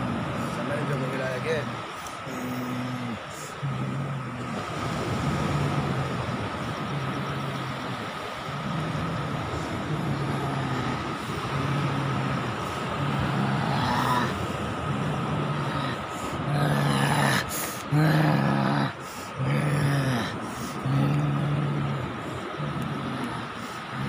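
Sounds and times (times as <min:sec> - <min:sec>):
man's low wordless voice pulsing: 0:00.0 - 0:24.0
steady rushing hiss: 0:00.0 - 0:24.0.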